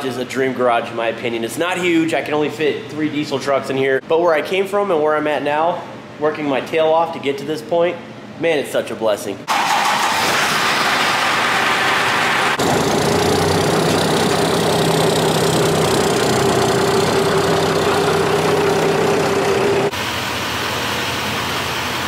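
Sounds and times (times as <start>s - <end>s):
pickup engine idling: 12.6s - 19.9s.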